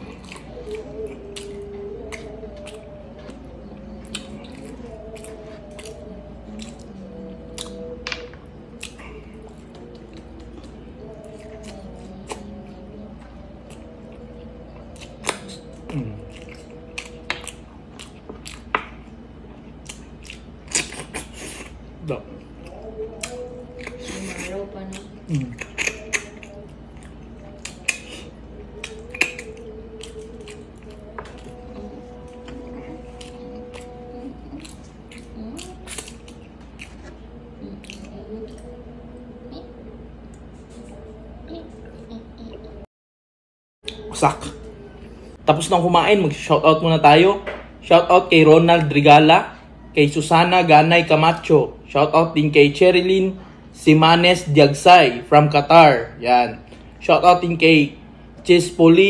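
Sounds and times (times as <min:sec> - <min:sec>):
person chewing and sucking: 0:00.0 - 0:08.0, 0:08.7 - 0:12.9, 0:13.6 - 0:21.8, 0:22.4 - 0:39.2.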